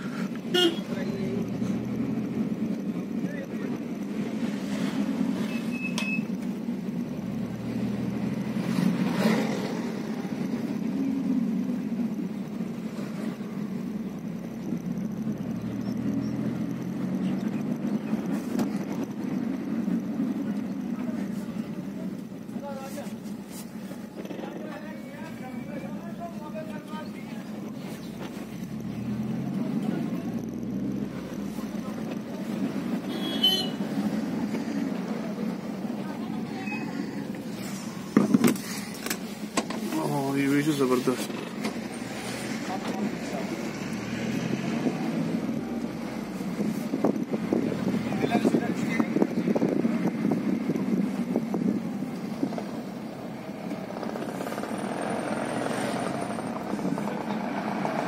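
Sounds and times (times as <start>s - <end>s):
car engine and road noise: 0.0s - 58.0s
short high beep: 5.5s - 6.3s.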